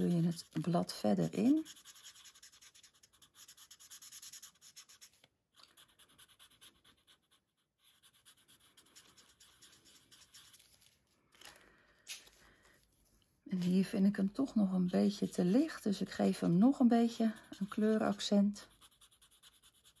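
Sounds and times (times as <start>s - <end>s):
marker scratching on paper: 0.0s - 10.7s, 14.8s - 20.0s.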